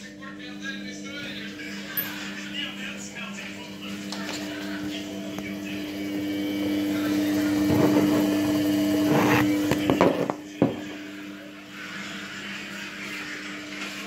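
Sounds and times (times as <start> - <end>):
washing machine humming: 0.0 - 14.0.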